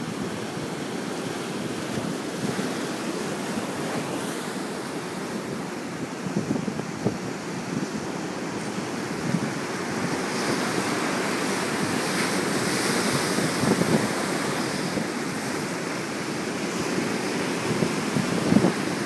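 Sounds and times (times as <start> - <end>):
surf washing against rocks: 0.0 - 19.0.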